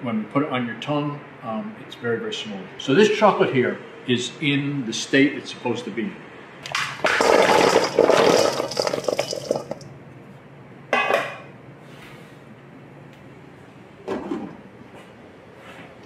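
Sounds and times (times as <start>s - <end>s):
chocolate chunks clattering in bowl: 6.7s - 9.8s.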